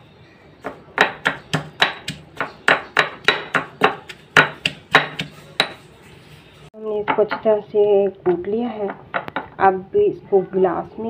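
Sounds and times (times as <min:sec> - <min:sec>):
pestle knocking in mortar: 0:00.6 - 0:05.9.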